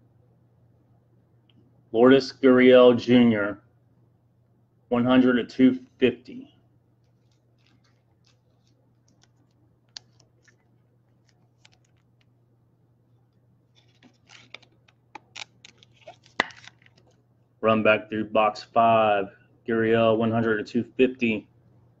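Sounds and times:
plastic clicks and scrapes: 7.0s - 12.3s, 13.7s - 17.2s
plastic sleeve crinkling: 7.0s - 12.3s, 13.7s - 17.2s.

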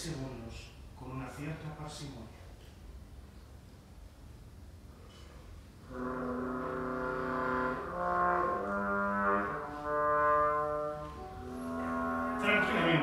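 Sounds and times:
wind ensemble playing chords: 5.8s - 13.0s.

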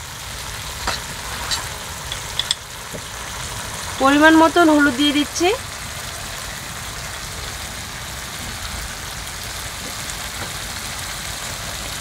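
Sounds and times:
paste sizzling in oil: 0.0s - 12.0s.

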